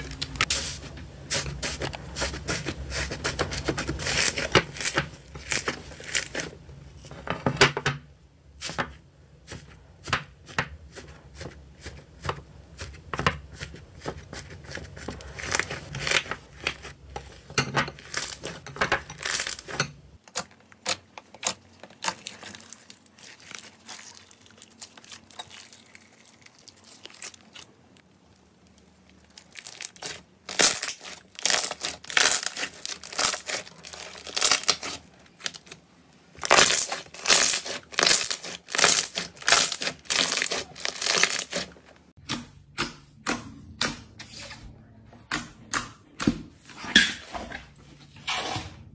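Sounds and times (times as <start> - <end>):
slime crackling and popping: 20.4 - 35.8, 36.4 - 41.7.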